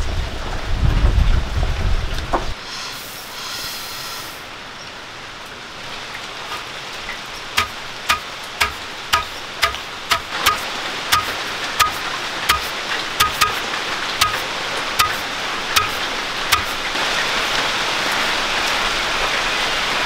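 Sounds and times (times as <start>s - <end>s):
pestle pounding in stone mortar: 7.6s - 16.8s.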